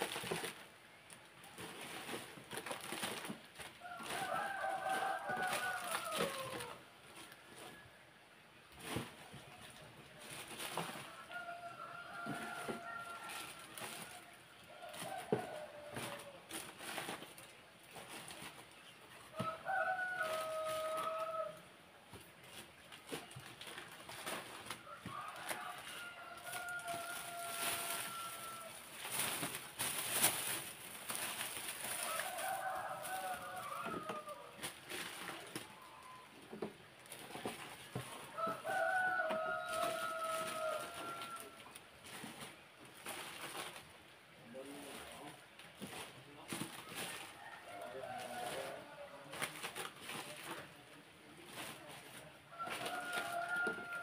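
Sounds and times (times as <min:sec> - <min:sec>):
plastic bags crinkling: 0:00.0 - 0:07.8, 0:08.8 - 0:21.6, 0:22.4 - 0:44.0, 0:44.8 - 0:50.8, 0:51.5 - 0:54.0
rooster crowing: 0:03.8 - 0:06.8, 0:10.9 - 0:16.6, 0:19.3 - 0:21.7, 0:24.8 - 0:28.9, 0:31.8 - 0:35.2, 0:38.0 - 0:41.8, 0:47.1 - 0:49.4, 0:52.5 - 0:54.0.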